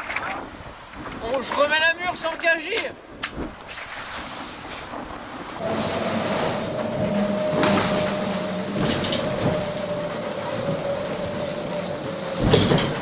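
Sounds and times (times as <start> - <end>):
rumbling water wash: 0.0 - 13.0
whining hum: 5.6 - 13.0
sharp knocks and clatters: 12.3 - 13.0.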